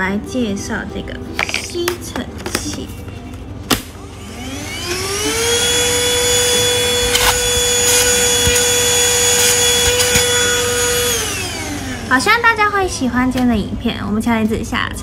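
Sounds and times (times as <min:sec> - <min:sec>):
handheld vacuum motor whine: 0:04.1 - 0:12.3.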